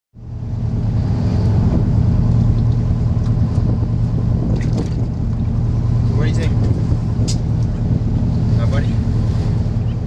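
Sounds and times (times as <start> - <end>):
boat engine humming: 0.1 - 10.0.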